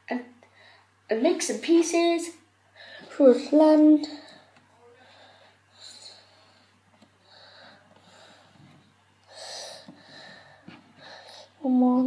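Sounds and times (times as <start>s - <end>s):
soft breathing: 2.7s - 3.2s, 4.0s - 11.6s.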